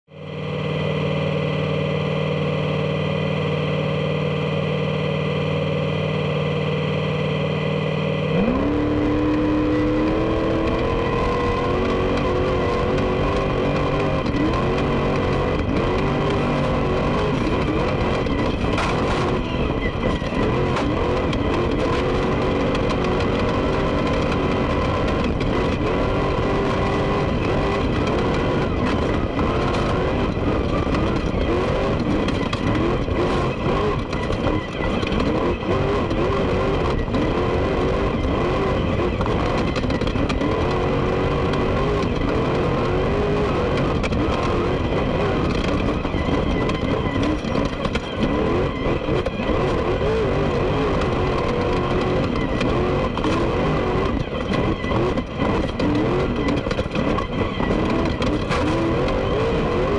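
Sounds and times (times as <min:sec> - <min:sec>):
race car engine revving: 0:00.2 - 0:59.9.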